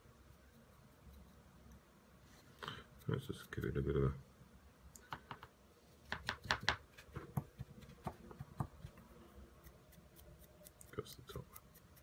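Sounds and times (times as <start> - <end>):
paintbrush ticks and scratches: 0.2 - 4.2, 6.1 - 12.0
light brush tapping: 4.9 - 12.0.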